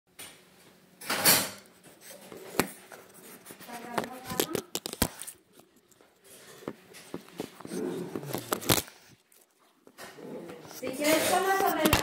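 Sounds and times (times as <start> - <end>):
phone handling rustle: 6.7 - 9.5
person's voice: 10.6 - 12.0.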